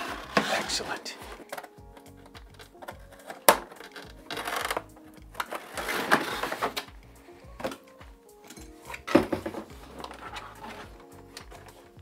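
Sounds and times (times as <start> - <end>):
cardboard rustling and scraping: 0.0 - 1.8, 2.5 - 6.9, 8.8 - 12.0
background music with steady beat: 0.0 - 12.0.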